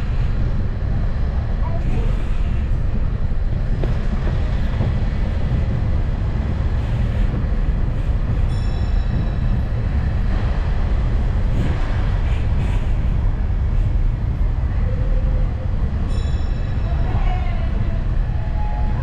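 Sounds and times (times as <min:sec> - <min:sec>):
road train rumble: 0:00.0 - 0:19.0
high ringing tone: 0:08.5 - 0:09.6, 0:16.1 - 0:19.0.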